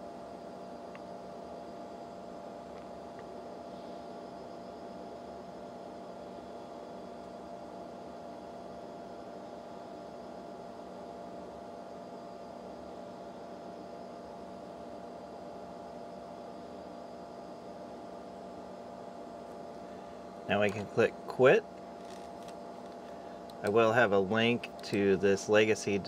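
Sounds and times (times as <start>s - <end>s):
steady hum: 0.0s - 26.0s.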